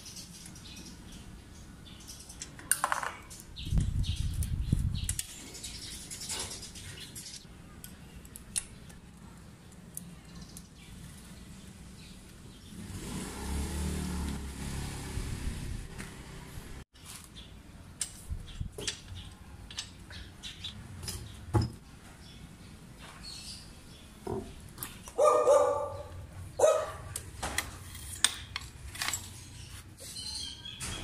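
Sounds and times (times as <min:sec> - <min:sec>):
hand tools tapping bicycle parts: 0:18.0 - 0:21.8.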